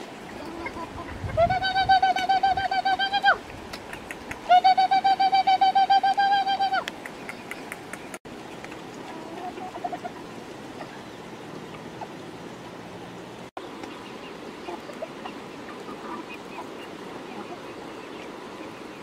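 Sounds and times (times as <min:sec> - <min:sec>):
animals pecking food: 0:03.5 - 0:04.5, 0:06.8 - 0:12.2
soft chicken clucks: 0:09.0 - 0:11.0.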